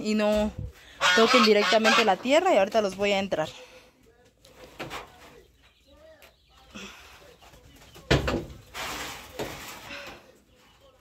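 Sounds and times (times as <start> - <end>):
geese calling softly: 0.9 - 2.5
rustling and scraping: 4.1 - 6.3, 7.4 - 11.0.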